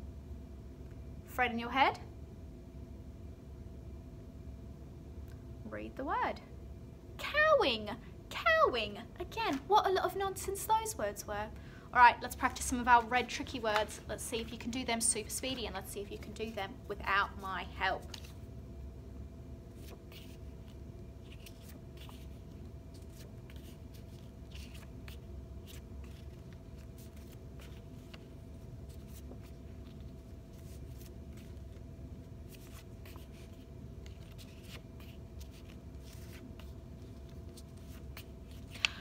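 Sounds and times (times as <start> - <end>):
low room hum: 0.0 - 39.0
flashcards rustling and tapping: 12.6 - 14.8, 32.5 - 39.0.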